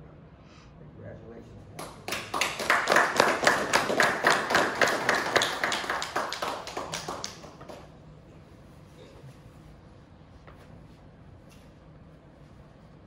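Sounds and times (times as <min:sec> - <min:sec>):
people clapping: 0:01.8 - 0:08.0.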